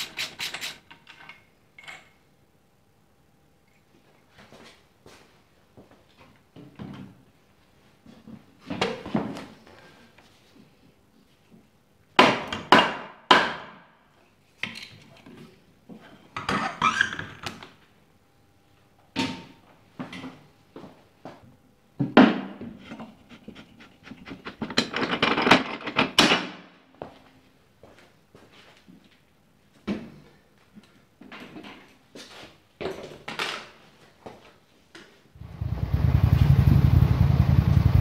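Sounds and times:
knocks and clanks of hand tools: 22.0s - 26.6s
metal parts being handled: 24.3s - 26.4s.

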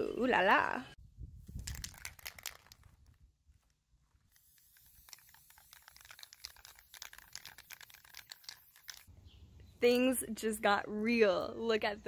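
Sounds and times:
spray can mixing ball rattling: 1.6s - 3.0s, 4.3s - 9.1s
spray can hissing: 4.3s - 9.1s.

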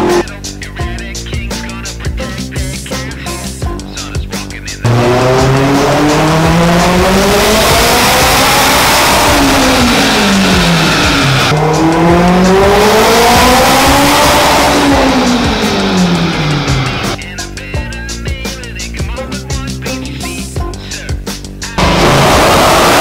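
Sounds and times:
car engine revving at full throttle: 0.0s - 0.2s, 4.8s - 17.2s, 21.8s - 23.0s.

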